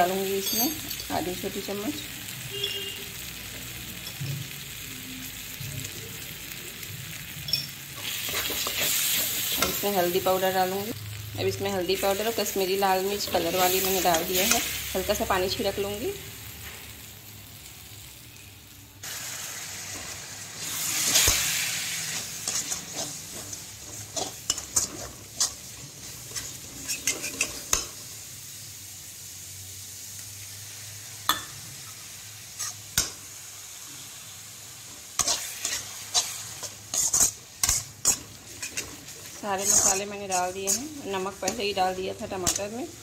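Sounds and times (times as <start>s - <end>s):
spices sizzling in a pan: 0.0s - 43.0s
spatula scraping metal pan: 8.0s - 9.8s, 22.0s - 27.8s, 35.2s - 41.6s.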